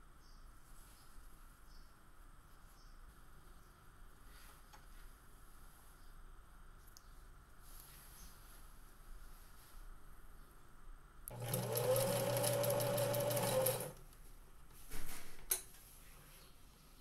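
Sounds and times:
sewing machine stitching: 11.3s - 14.0s.

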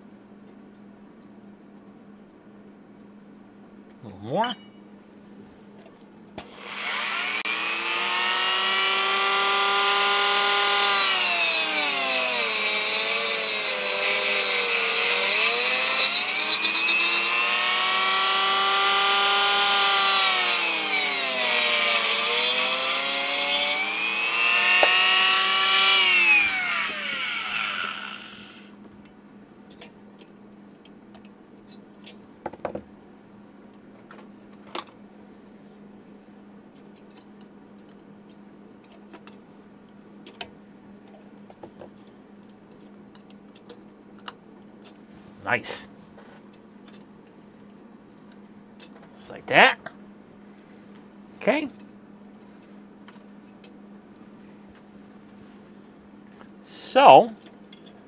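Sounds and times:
rotary tool whine: 6.4s - 28.8s
cutting wheel grinding metal: 6.5s - 28.8s.

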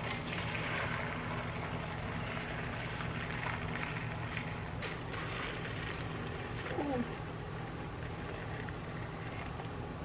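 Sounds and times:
liquid pouring and splashing on leaves: 0.0s - 7.2s.

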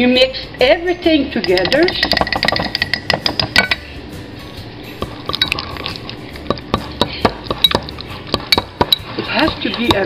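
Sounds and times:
metal clinking on glass: 1.4s - 3.9s, 5.3s - 10.0s
wet squishing of stirred sauce: 4.9s - 10.0s.

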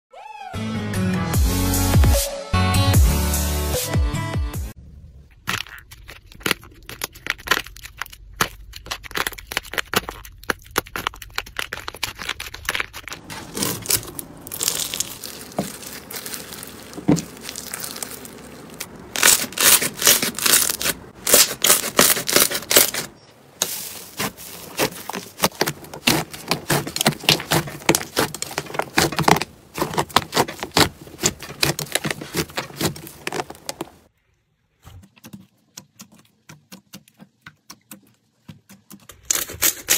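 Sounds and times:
slime crackling and popping: 5.3s - 34.0s
slime tearing: 5.4s - 34.0s.

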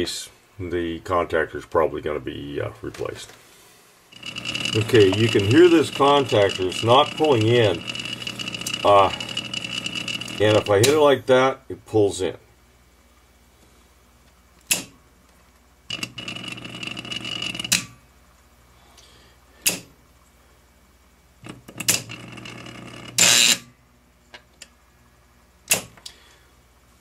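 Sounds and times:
contactor coil buzzing: 4.1s - 11.4s, 15.8s - 18.1s, 21.4s - 23.7s.

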